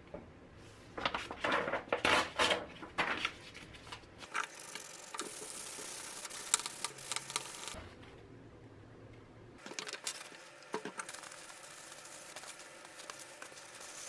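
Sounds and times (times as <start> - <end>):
sandpaper scratching plastic: 9.9 - 14.0.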